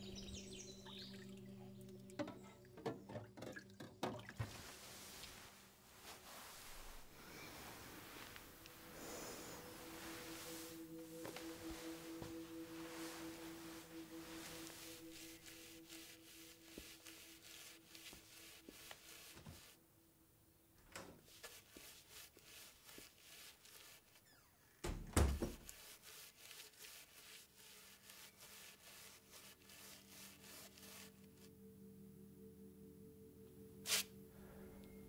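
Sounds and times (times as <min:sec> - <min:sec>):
paintbrush scraping on canvas: 0:04.7 - 0:19.8, 0:21.3 - 0:24.4, 0:25.4 - 0:31.5, 0:33.9 - 0:34.1
ringing musical tone: 0:08.6 - 0:16.8.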